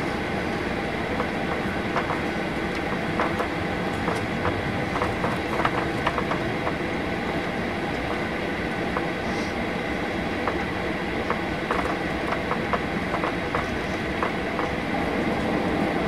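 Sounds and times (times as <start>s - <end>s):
jet engines idling: 0.0s - 16.0s
clicks and rattles: 1.2s - 6.8s.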